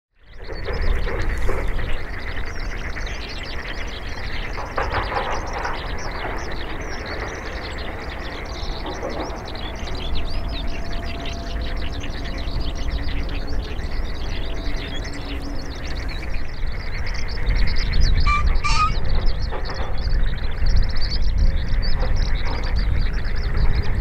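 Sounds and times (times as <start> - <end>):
small birds chirping: 0.2 - 24.0
steady low rumble: 0.4 - 24.0.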